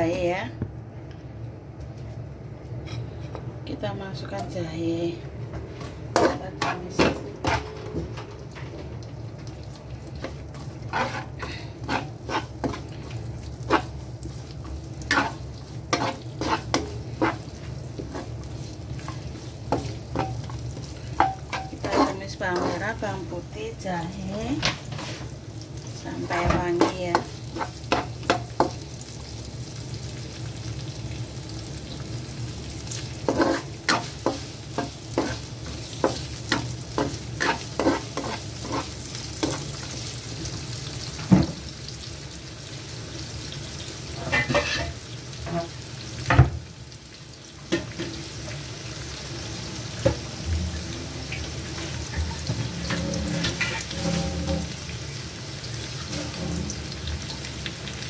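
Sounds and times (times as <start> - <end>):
aromatics sizzling in hot oil: 2.9 - 58.0
utensil scraping and knocking pan: 52.1 - 54.7.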